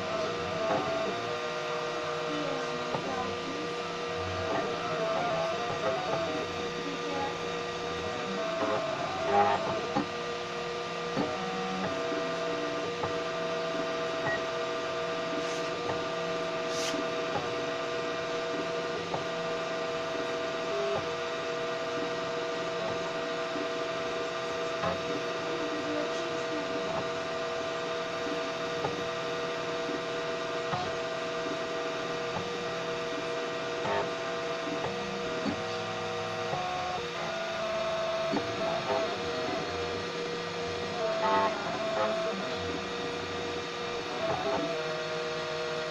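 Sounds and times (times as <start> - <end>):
printer motor humming: 0.0 - 45.9.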